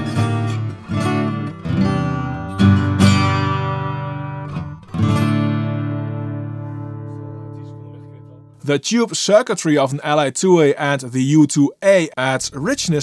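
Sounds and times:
acoustic guitar strumming chords: 0.0s - 8.6s.

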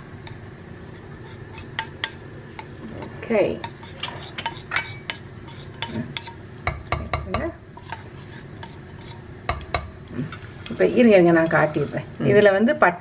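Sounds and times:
metal spoon clinking on pot: 5.8s - 8.0s, 8.6s - 10.1s.

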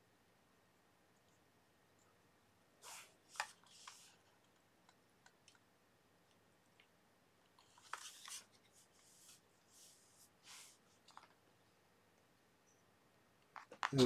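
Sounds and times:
faint handling clicks and rustles: 2.8s - 5.7s, 6.3s - 11.4s.

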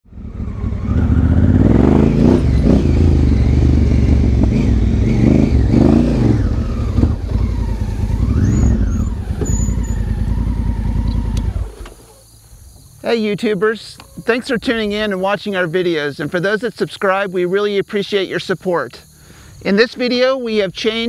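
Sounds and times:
motorcycle engine revving: 0.0s - 12.3s.

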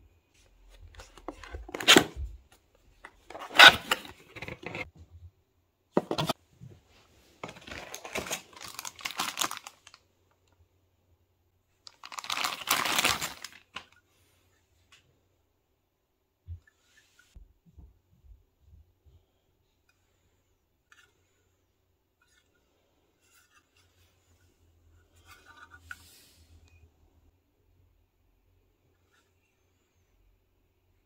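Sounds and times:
plastic bag crinkling: 7.5s - 10.0s, 11.9s - 13.9s.

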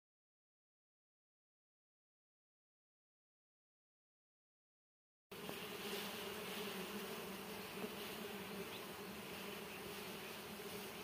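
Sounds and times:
bees buzzing: 5.3s - 11.0s
hand brushing bees off comb: 5.4s - 11.0s.

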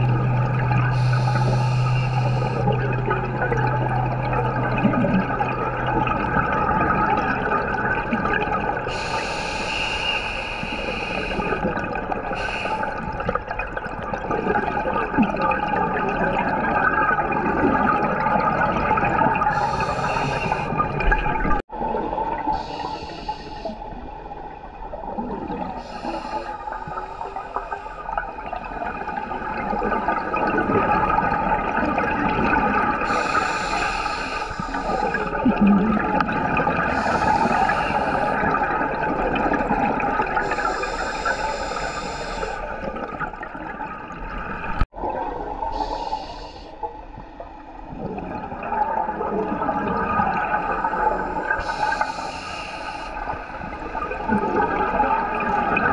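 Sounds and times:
regulator hissing inhalations: 0.9s - 2.7s, 8.9s - 11.6s, 12.4s - 13.0s, 19.5s - 20.7s, 22.6s - 23.9s, 25.8s - 28.1s, 33.0s - 35.4s, 36.9s - 38.4s, 40.4s - 42.8s, 45.7s - 46.9s, 50.6s - 53.7s
bubbling exhalations: 28.5s - 46.3s, 47.8s - 52.2s, 53.2s - 55.9s.

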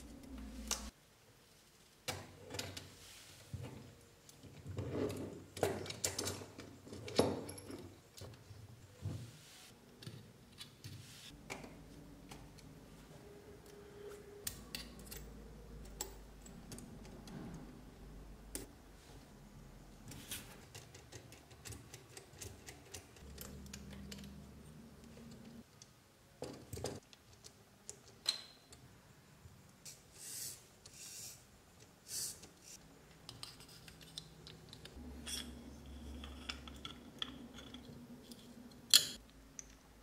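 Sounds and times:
clicks and scrapes of metal parts: 32.1s - 39.8s.

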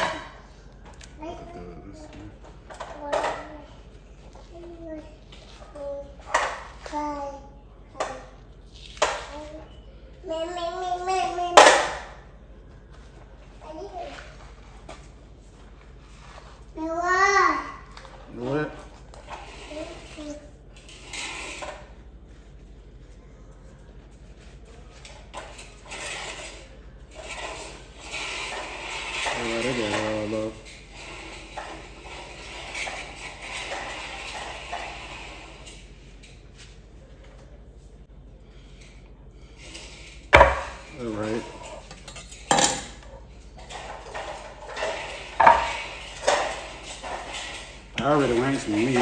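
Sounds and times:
utensils and dishes clinking: 39.6s - 49.0s.

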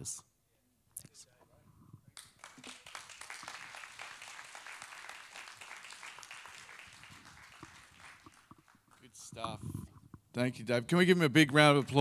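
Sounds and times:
crowd applauding: 2.2s - 9.3s.

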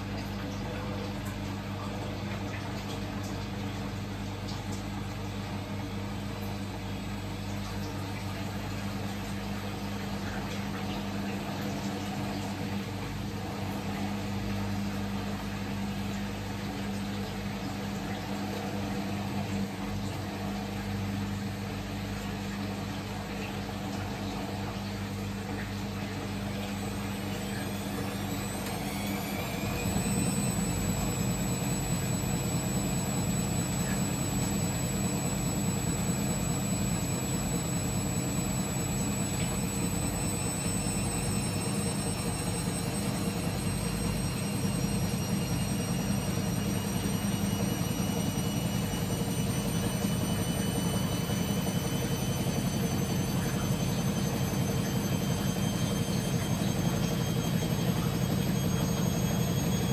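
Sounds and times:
washing machine humming: 0.0s - 59.9s
washing machine spin whine: 0.0s - 59.9s.

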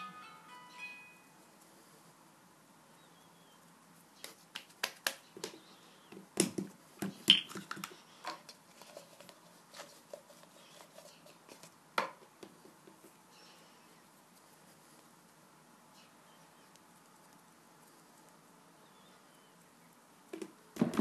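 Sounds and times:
hands working play dough: 3.1s - 15.6s.

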